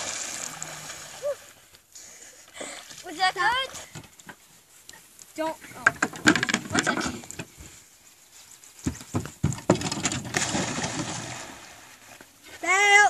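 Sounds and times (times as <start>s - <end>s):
footsteps on wooden boards: 8.7s - 10.4s
big splash into water: 9.8s - 12.0s.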